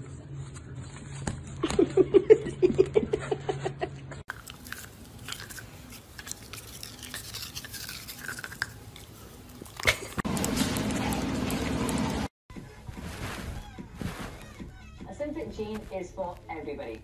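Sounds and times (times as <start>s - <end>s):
dog teeth chewing on toothbrush: 4.3s - 11.6s.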